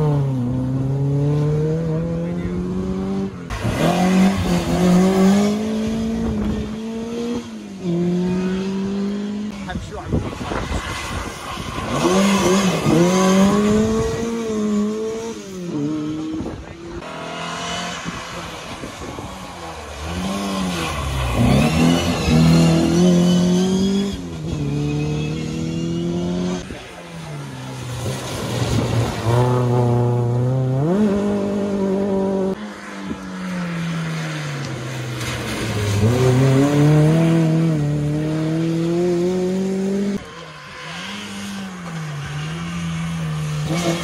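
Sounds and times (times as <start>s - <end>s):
rally car engines accelerating: 0.0s - 44.0s
rain and wet tyres hissing: 32.6s - 36.6s.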